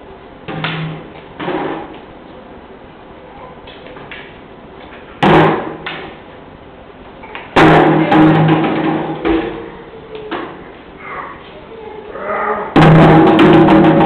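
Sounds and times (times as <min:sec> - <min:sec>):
loud hollow thuds: 0:05.2 - 0:06.2, 0:07.6 - 0:09.7, 0:12.8 - 0:14.0.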